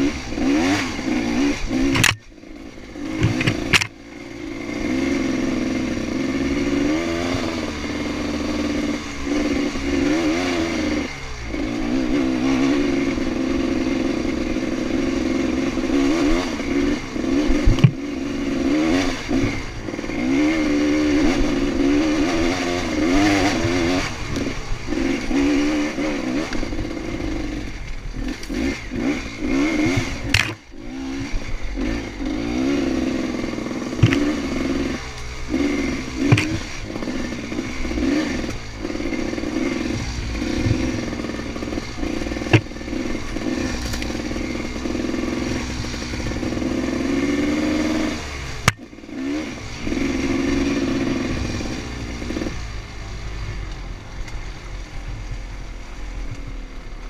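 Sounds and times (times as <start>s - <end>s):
dirt bike engine revving: 0.0s - 54.1s
bike knocking over bumps: 34.0s - 34.4s.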